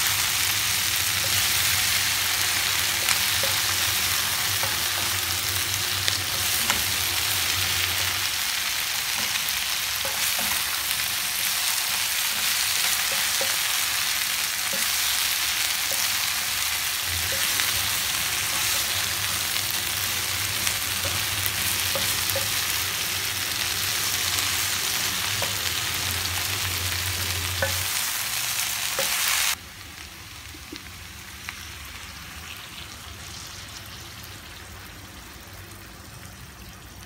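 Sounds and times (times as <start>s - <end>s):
vegetables sizzling in oil: 0.0s - 37.0s
spatula tapping pan: 19.8s - 23.1s.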